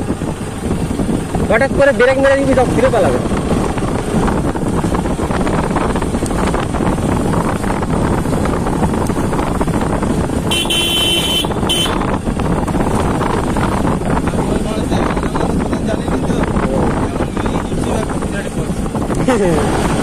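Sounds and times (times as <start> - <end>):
motorcycle engine running: 0.0 - 20.0
wind on microphone: 0.0 - 20.0
horn honking: 10.4 - 12.2.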